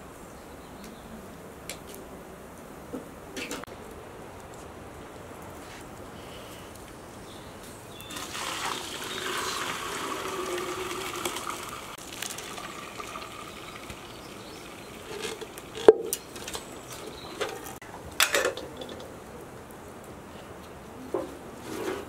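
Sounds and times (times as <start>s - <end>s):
liquid being poured: 8.1s - 15.9s.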